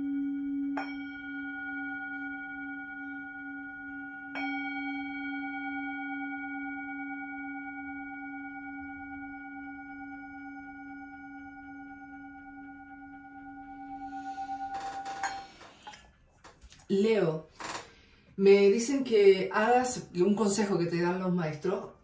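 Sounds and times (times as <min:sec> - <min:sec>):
singing bowl struck with mallet: 0:00.0 - 0:15.6
singing bowl ringing: 0:00.0 - 0:16.0.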